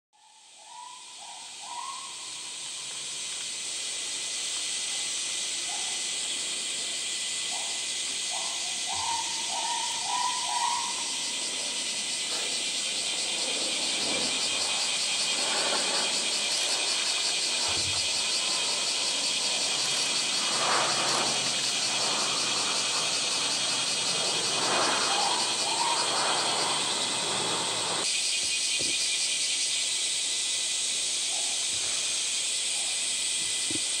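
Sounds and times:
short whistled calls: 0:00.2 - 0:02.5, 0:08.3 - 0:11.3, 0:25.0 - 0:27.2
cicadas chorus: 0:00.2 - 0:34.0.

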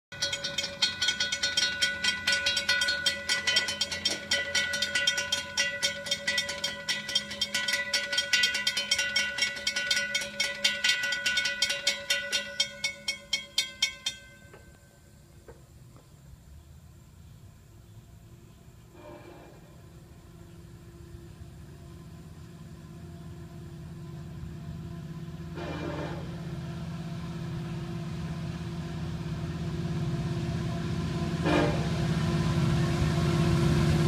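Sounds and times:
railroad crossing bell ringing: 0:00.1 - 0:15.2, 0:24.4 - 0:26.6.

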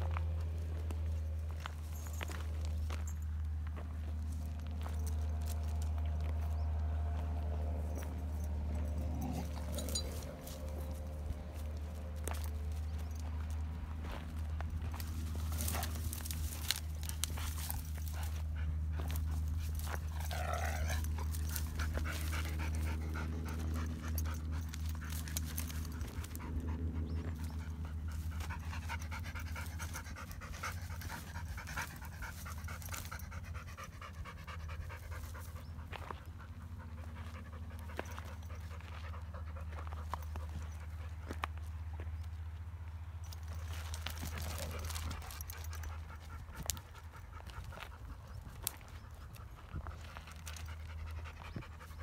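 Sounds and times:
dogs panting: 0:03.8 - 0:42.2, 0:43.2 - 0:52.0
dogs whining: 0:08.8 - 0:11.0, 0:19.8 - 0:35.7.

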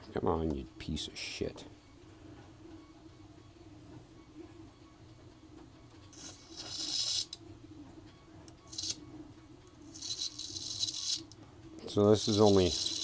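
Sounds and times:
faint steady hum: 0:00.0 - 0:13.0
electric arc crackling sizzle: 0:06.1 - 0:07.4, 0:08.5 - 0:09.1, 0:09.7 - 0:13.0.

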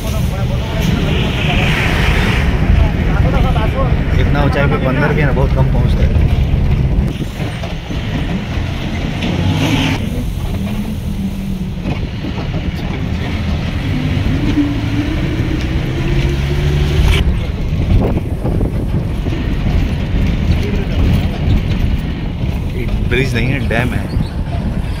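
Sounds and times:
vehicle engine and road drone: 0:00.0 - 0:25.0.

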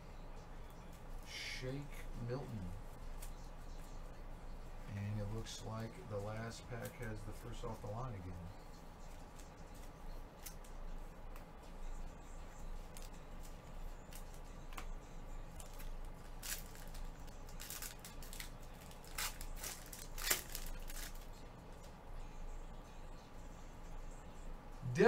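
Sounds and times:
foil wrapper tearing and crinkling: 0:15.6 - 0:21.3.

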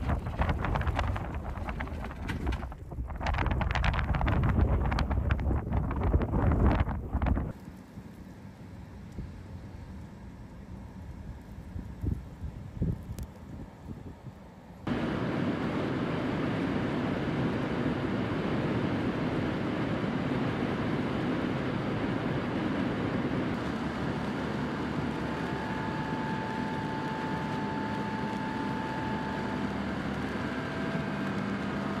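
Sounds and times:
wind over car body: 0:00.0 - 0:07.6, 0:11.3 - 0:15.6
engine hum: 0:00.0 - 0:32.0
faint steady whine: 0:00.0 - 0:32.0.

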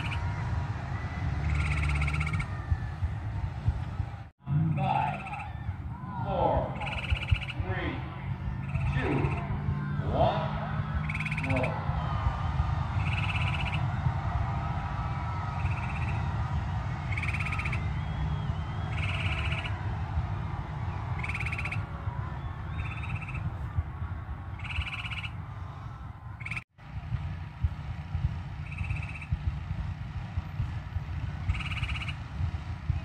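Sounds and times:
faint wavering calls: 0:00.0 - 0:00.4, 0:01.0 - 0:03.0, 0:04.5 - 0:11.9, 0:13.0 - 0:14.1, 0:17.1 - 0:19.8, 0:20.9 - 0:23.5, 0:24.6 - 0:25.4, 0:28.6 - 0:29.4, 0:31.4 - 0:32.3
steady low rumble: 0:00.0 - 0:33.0.

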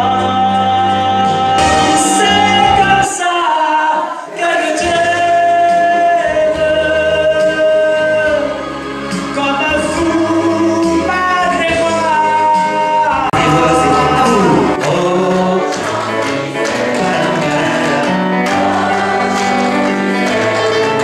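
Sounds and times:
keyboard accompaniment: 0:00.0 - 0:21.0
person singing long notes: 0:12.9 - 0:16.2.

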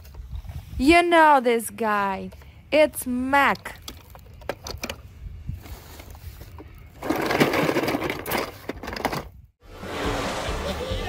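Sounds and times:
toy cars clattering in a box: 0:06.9 - 0:09.4.

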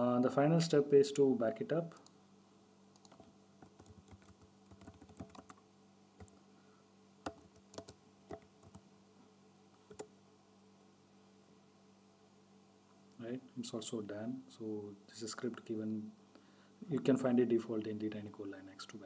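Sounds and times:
faint steady hum: 0:00.0 - 0:19.0
keyboard typing: 0:03.0 - 0:05.6, 0:07.2 - 0:08.8, 0:09.9 - 0:10.1.

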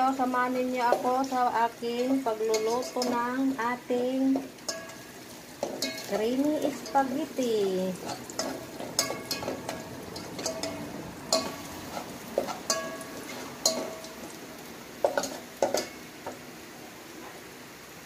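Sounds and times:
light sizzle: 0:00.0 - 0:18.0
spatula clinking against pot: 0:02.0 - 0:03.3, 0:04.4 - 0:05.0, 0:05.6 - 0:06.2, 0:08.0 - 0:14.2.

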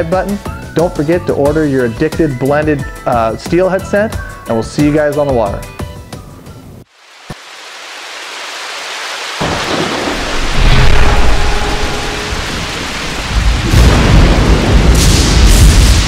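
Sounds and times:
rain hiss: 0:06.8 - 0:16.0
deep thunder rumbling: 0:09.4 - 0:16.0.

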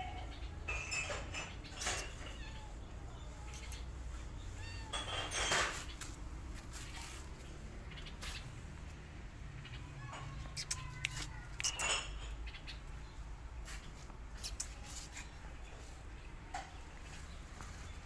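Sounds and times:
faint thin squeak: 0:01.4 - 0:06.0
sandalled footsteps on concrete: 0:05.8 - 0:08.8.

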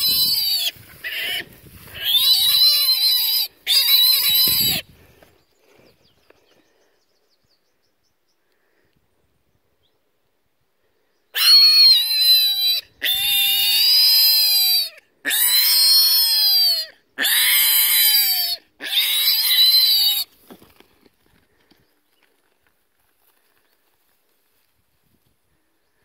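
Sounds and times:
piglet squealing: 0:00.0 - 0:04.8, 0:11.4 - 0:20.3.

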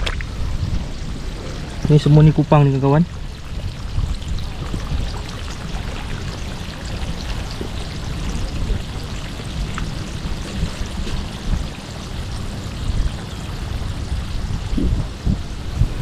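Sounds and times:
sea water splashing: 0:00.0 - 0:16.0
wind on microphone: 0:00.0 - 0:16.0.

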